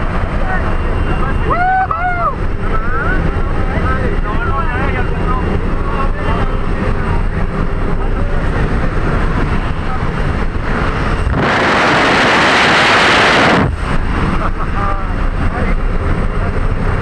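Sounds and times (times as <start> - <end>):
plane engine rumbling: 0.0 - 17.0
wind rush on microphone: 1.6 - 17.0.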